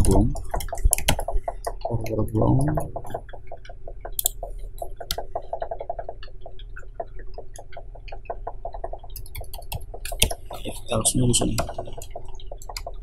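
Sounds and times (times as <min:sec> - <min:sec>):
low electrical hum: 0:00.0 - 0:13.0
rapid computer mouse clicking: 0:00.0 - 0:13.0.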